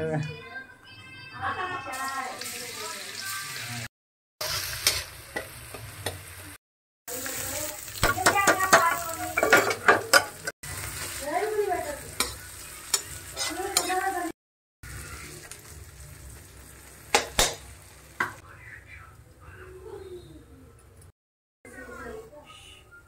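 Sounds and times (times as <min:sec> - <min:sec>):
light sizzle: 0:01.9 - 0:19.6
spatula knocking pan: 0:08.0 - 0:10.4
metal spatula scraping pan: 0:12.1 - 0:14.3.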